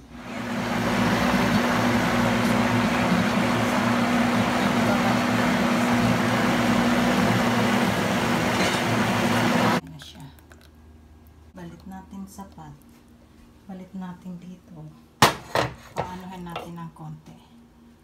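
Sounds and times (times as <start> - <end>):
blender running: 0.0 - 9.8
low motor hum: 0.0 - 9.8.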